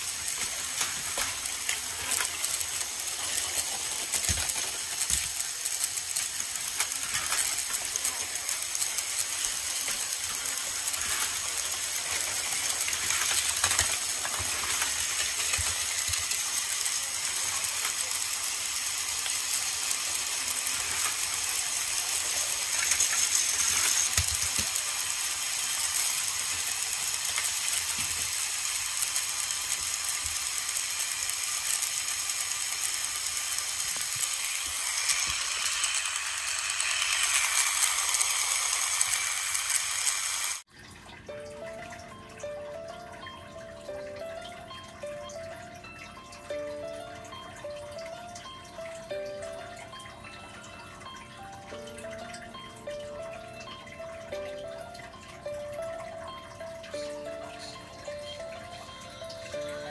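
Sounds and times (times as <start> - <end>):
wheels clattering over track joints: 0.0 - 40.1
toy train motors whirring: 0.0 - 40.7, 43.9 - 59.9.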